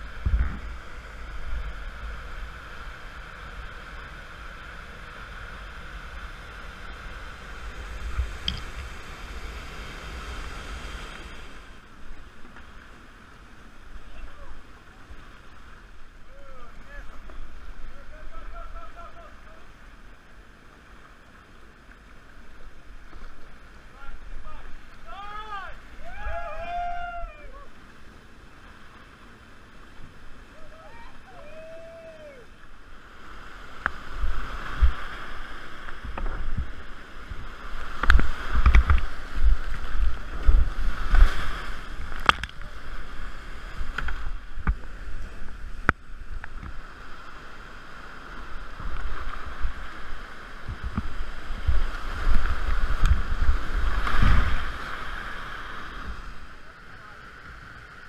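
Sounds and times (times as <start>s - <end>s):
whitewater rushing and splashing: 0.0s - 58.0s.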